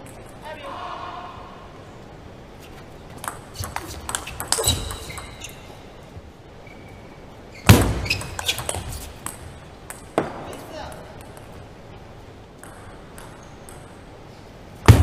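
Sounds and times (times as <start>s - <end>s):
ping pong ball clicking: 3.2s - 5.4s, 8.2s - 10.3s, 12.6s - 14.0s
shoe squeaks: 3.5s - 5.9s, 6.6s - 9.2s.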